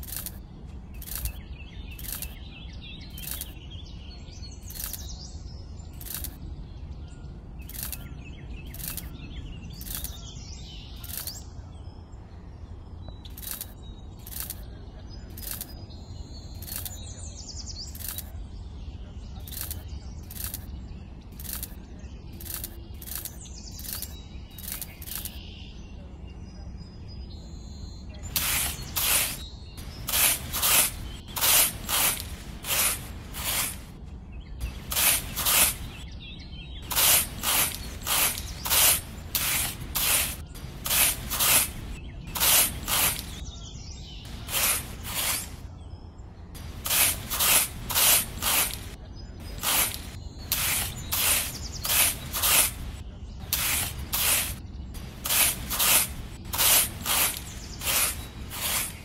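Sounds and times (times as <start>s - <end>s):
small metal hoe scraping sand: 19.5s - 20.6s, 21.4s - 21.8s, 28.2s - 34.0s, 34.6s - 36.0s, 36.8s - 43.4s, 44.3s - 45.6s, 46.6s - 59.0s.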